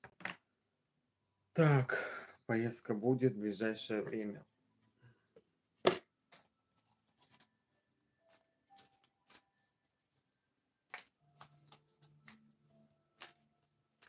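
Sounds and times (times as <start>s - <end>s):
cards rustling and tapping: 8.3s - 10.2s, 10.8s - 14.0s.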